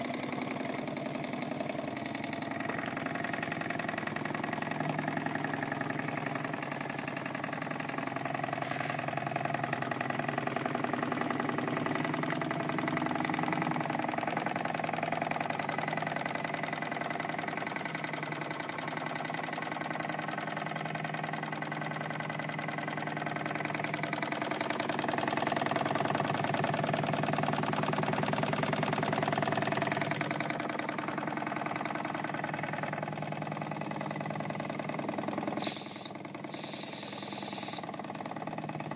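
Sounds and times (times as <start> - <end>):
toy steam engine chuffing: 8.5 - 9.2, 35.5 - 37.9.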